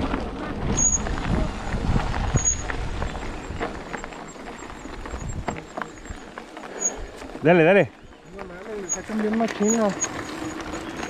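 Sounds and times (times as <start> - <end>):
wind on microphone: 0.0 - 3.9, 4.9 - 6.2
bike tyres crunching on dirt: 0.0 - 11.0
short high squeaks: 0.7 - 1.1, 2.3 - 2.7, 6.7 - 7.1, 8.8 - 11.0
bike knocks and rattles: 8.3 - 11.0.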